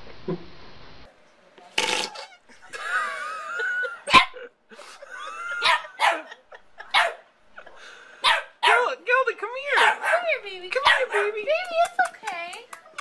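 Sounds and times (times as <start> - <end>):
small dog barking: 5.6 - 7.2, 8.2 - 8.9, 9.7 - 11.4.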